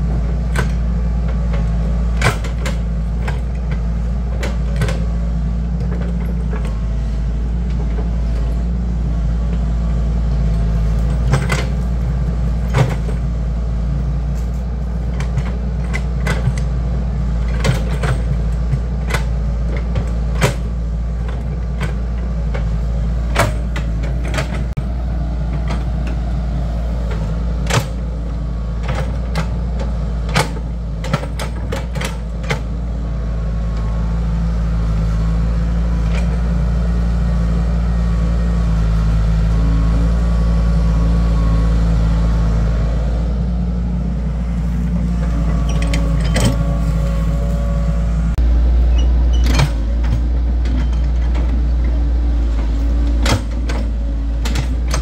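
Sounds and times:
excavator diesel engine running: 0:00.0 - 0:55.0
metal clanks and knocks: 0:10.9 - 0:13.3, 0:17.4 - 0:24.8, 0:27.0 - 0:32.8, 0:44.7 - 0:47.5, 0:49.3 - 0:55.0.

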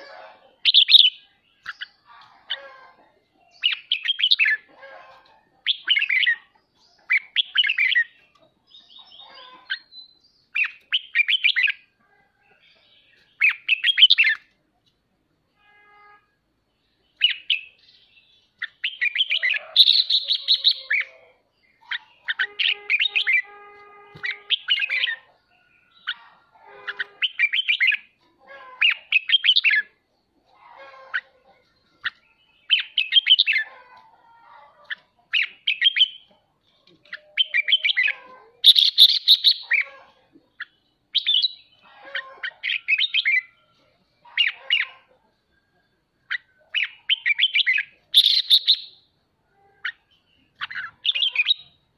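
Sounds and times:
bulbul chattering chirps: 0:46.3 - 0:49.1.

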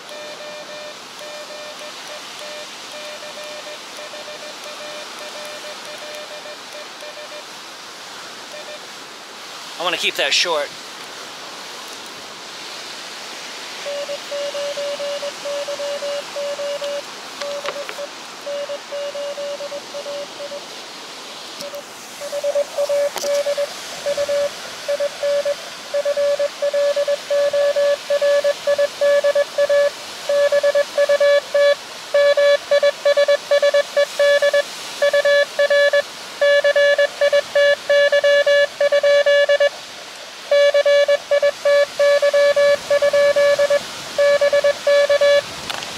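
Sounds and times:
morse code beeping: 0:00.0 - 0:07.5, 0:08.5 - 0:08.8, 0:13.8 - 0:20.6, 0:21.6 - 0:39.8, 0:40.5 - 0:45.5
radio band noise hiss: 0:00.0 - 0:45.9.

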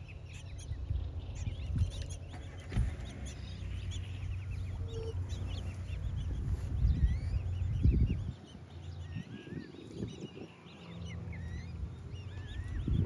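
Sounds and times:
low rumble: 0:00.0 - 0:08.4
songbirds chirping and trilling: 0:00.0 - 0:13.0.

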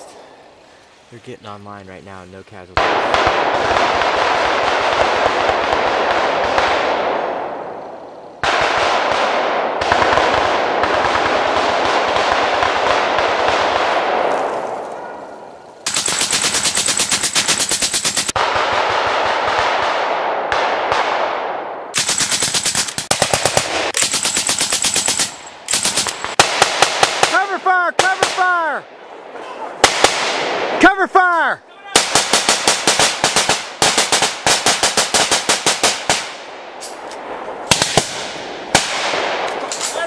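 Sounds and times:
machine gun automatic bursts: 0:15.8 - 0:19.8, 0:22.0 - 0:27.4, 0:32.0 - 0:36.3.

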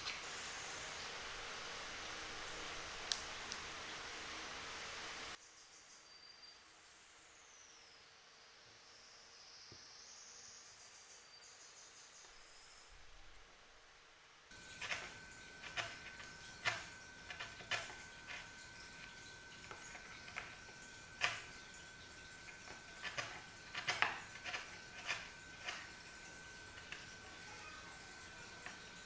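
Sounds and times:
faint high whine: 0:00.0 - 0:29.0
chisel cutting wood: 0:14.5 - 0:29.0.

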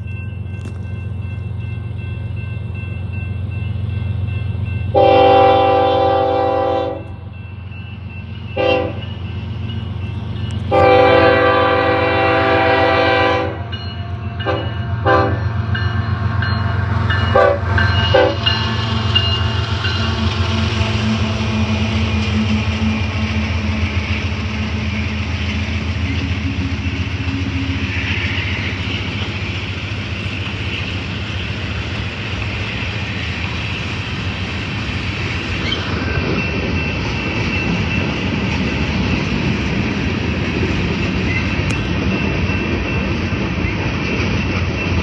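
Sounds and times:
diesel locomotive engines rumbling: 0:00.0 - 0:45.0
train air horn blasts: 0:04.9 - 0:07.2, 0:08.6 - 0:09.1, 0:10.7 - 0:13.7, 0:14.4 - 0:15.5, 0:17.3 - 0:18.6.

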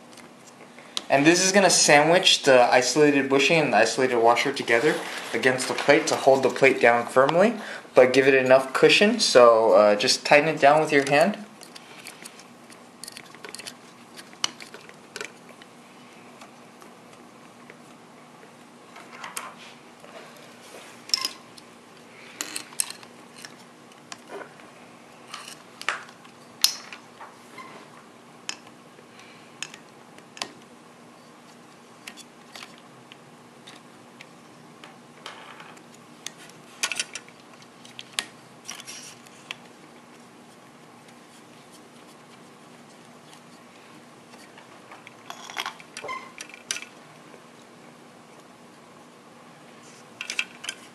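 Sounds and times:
faint steady hum: 0:00.0 - 0:50.9
metal screws clicking and scraping: 0:11.0 - 0:15.4, 0:22.4 - 0:23.6, 0:25.3 - 0:25.6.

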